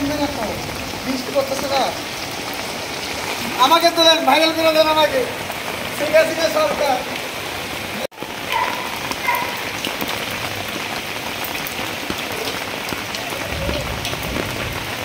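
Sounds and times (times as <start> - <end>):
rain falling on water: 0.0 - 15.0.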